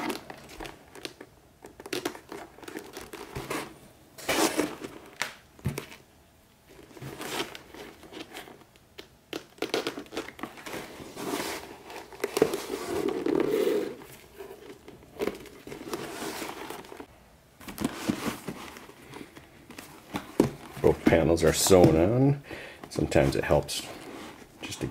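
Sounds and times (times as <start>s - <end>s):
leather rustling and creaking: 9.3s - 17.1s.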